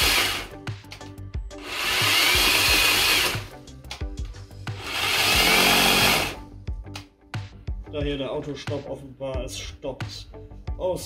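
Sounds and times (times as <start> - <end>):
electric chainsaw motor whining: 0.0 - 0.5, 1.6 - 3.5, 4.8 - 6.4.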